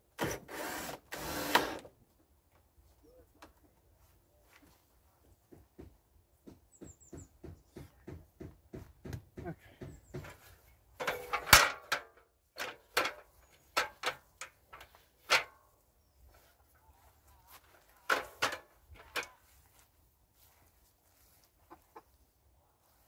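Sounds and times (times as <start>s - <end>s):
metal stepladder clanking: 11.0s - 15.6s.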